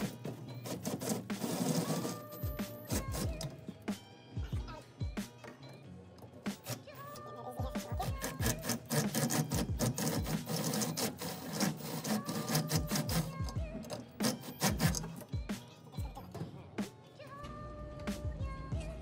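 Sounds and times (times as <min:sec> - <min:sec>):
drill grinding into metal: 0:00.0 - 0:03.6, 0:08.0 - 0:15.3
background music with beat: 0:00.0 - 0:19.0.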